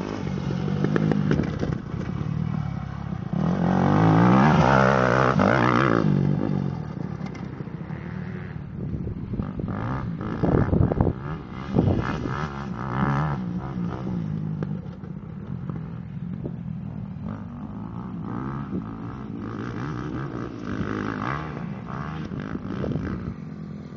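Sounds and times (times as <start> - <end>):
dirt bike engine revving: 0.0 - 8.7.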